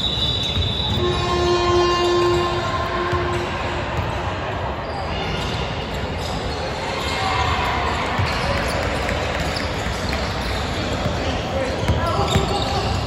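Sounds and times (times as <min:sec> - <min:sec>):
crowd noise in gym: 0:00.0 - 0:13.0
players running on court: 0:06.2 - 0:13.0.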